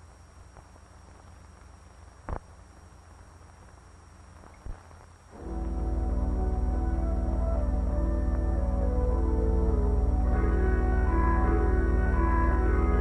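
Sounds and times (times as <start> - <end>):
old film soundtrack hiss and hum: 0.0 - 13.0
music with held low chord: 5.4 - 13.0.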